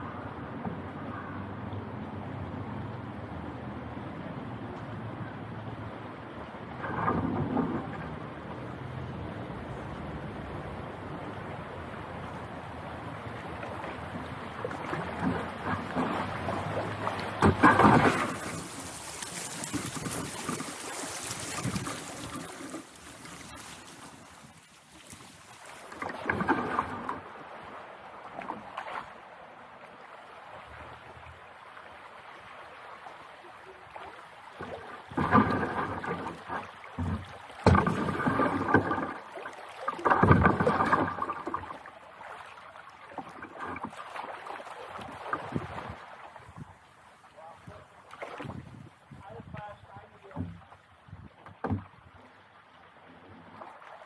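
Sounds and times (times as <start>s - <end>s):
paddle blades splashing: 0.0s - 54.0s
river water rushing over stones: 5.4s - 29.5s, 33.8s - 46.5s.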